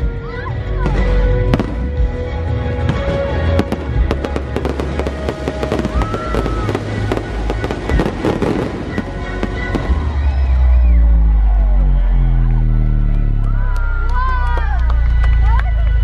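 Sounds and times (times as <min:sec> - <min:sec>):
show music with heavy bass: 0:00.0 - 0:16.0
fireworks bangs and crackles: 0:00.7 - 0:10.8.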